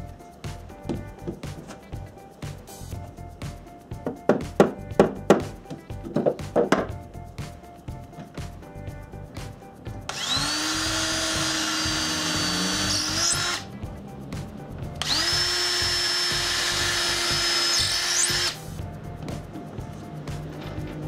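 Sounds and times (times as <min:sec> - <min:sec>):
cordless drill whining: 0:10.1 - 0:13.7, 0:15.0 - 0:18.6.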